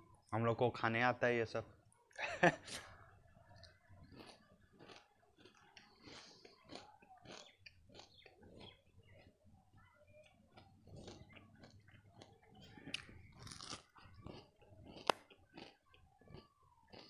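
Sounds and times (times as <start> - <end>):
person chewing crunchy sweet: 3.5 - 9.6, 10.2 - 17.0.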